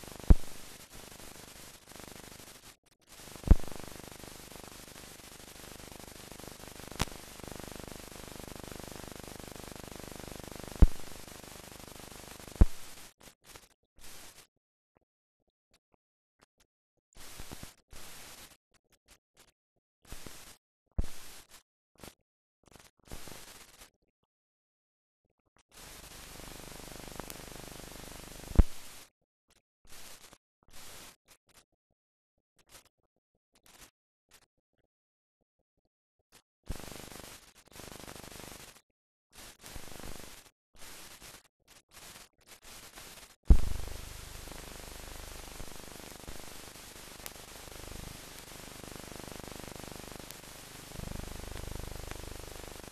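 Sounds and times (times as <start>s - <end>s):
film soundtrack hiss and static: 0.0s - 13.3s, 25.8s - 29.0s, 36.7s - 38.8s, 39.4s - 52.9s
faint ticks: 0.3s - 8.2s, 10.8s - 13.6s.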